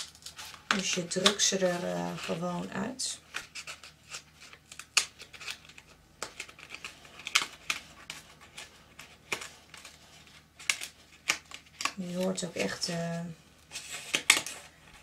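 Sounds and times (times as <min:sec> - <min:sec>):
cardstock snapping and crackling: 0:00.0 - 0:02.4, 0:03.3 - 0:10.0, 0:10.6 - 0:12.4, 0:14.0 - 0:14.6.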